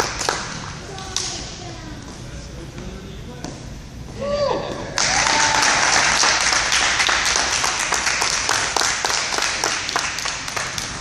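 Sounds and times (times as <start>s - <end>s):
audience applauding: 5.0s - 11.0s.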